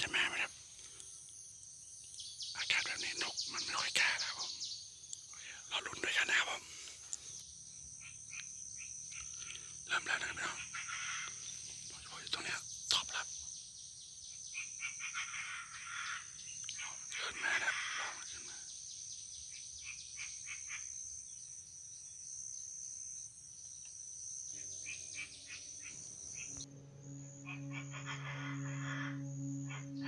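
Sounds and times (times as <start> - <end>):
high-pitched insect whine: 0.0 - 30.0
bird harsh calls: 10.3 - 11.7, 14.5 - 17.0
low steady hum: 26.0 - 30.0.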